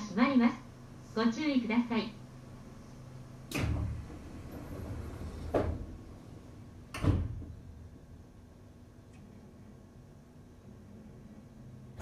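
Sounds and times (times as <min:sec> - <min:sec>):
sliding train doors closing: 0:02.6 - 0:09.7
doors shutting with a thud: 0:03.4 - 0:08.0.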